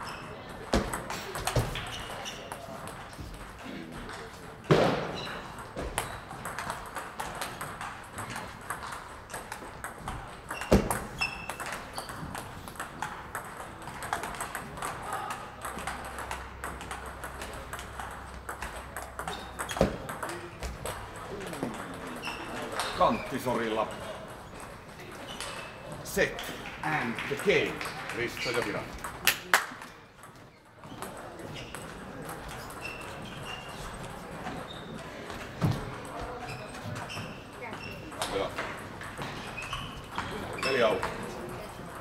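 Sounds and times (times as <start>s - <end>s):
table tennis balls clicking: 0.0s - 42.0s.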